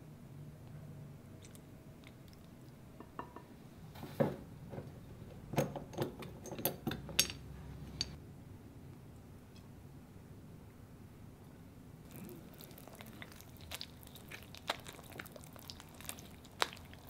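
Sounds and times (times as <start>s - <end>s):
glass and metal clinks: 5.9s - 7.4s.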